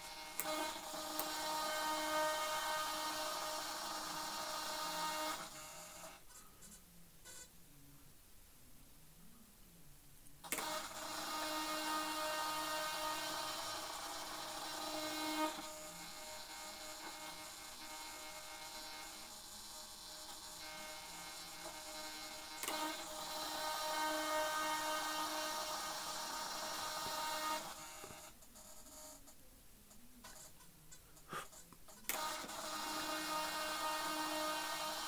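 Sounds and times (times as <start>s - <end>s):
electric servos whining: 0.0s - 6.2s, 10.4s - 29.2s, 32.1s - 35.0s.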